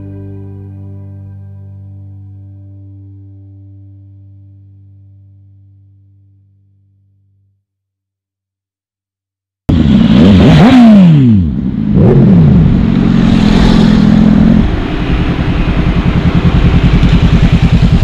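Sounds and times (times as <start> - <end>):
motorcycle engine at low revs: 9.7 - 18.0
motorcycles passing by: 9.8 - 18.0.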